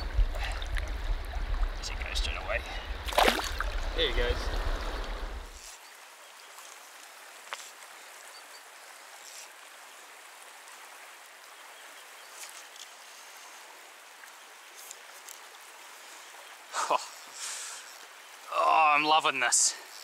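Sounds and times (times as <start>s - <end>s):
water rushing over stones: 0.0s - 8.1s.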